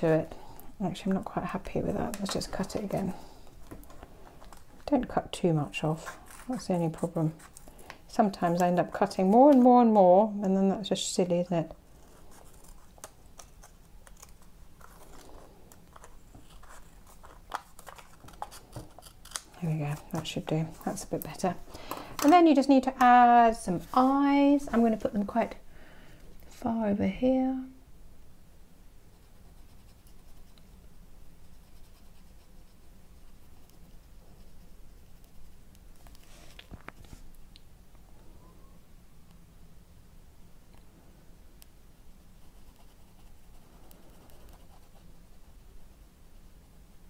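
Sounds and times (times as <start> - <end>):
scissors snipping paper: 12.4 - 15.3, 15.9 - 20.4.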